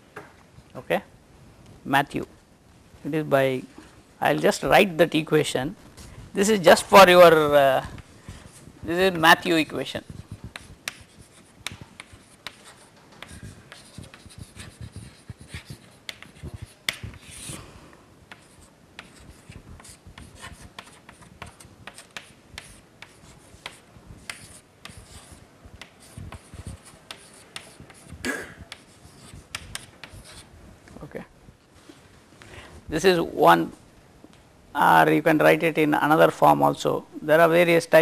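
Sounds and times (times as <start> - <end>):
chalk tapping and scratching: 7.8 - 17.6, 18.3 - 30.5.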